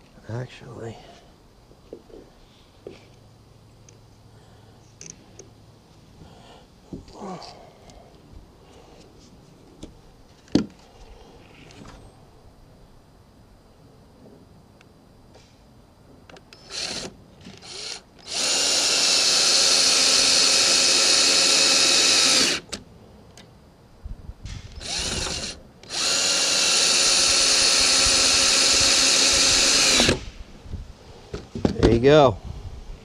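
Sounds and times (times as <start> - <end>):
power drill whirring: 16.5 - 22.7, 24.7 - 30.3.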